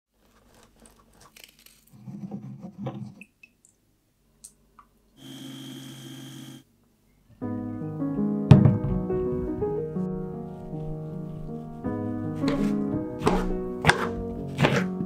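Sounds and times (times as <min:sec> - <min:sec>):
lemon squishing on a juicer: 0:12.5 - 0:15.0.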